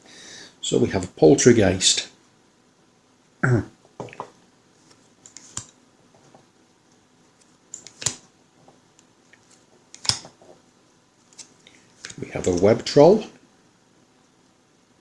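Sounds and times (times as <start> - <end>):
cards flicking and rubbing: 4.8 - 6.3, 7.3 - 8.3, 9.4 - 10.6, 11.2 - 12.9.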